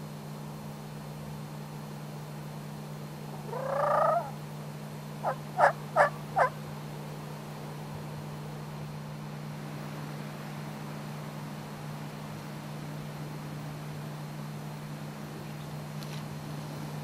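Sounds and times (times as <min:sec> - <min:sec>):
short sharp turkey calls: 0:03.3 - 0:04.4, 0:05.2 - 0:06.6
turkey gobbling: 0:03.4 - 0:04.4, 0:05.2 - 0:06.6.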